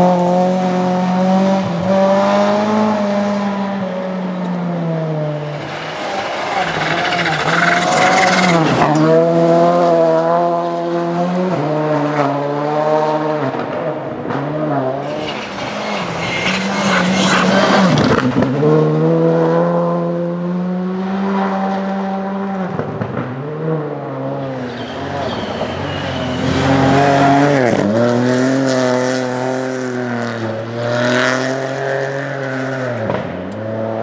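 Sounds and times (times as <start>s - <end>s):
rally car engine at high revs: 0.0s - 34.0s
gravel spraying from tyres: 5.5s - 8.8s, 15.0s - 18.4s.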